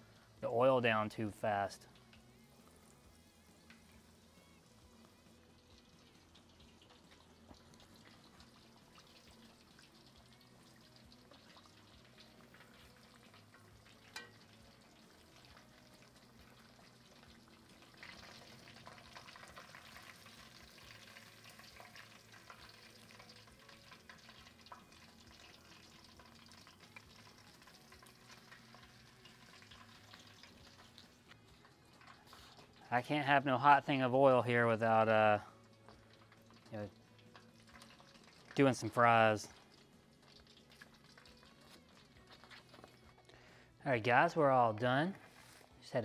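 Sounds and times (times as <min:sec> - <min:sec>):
hot oil sizzling and crackling: 0:00.0 - 0:46.0
metal spoon stirring fries: 0:11.2 - 0:32.8, 0:35.9 - 0:38.6.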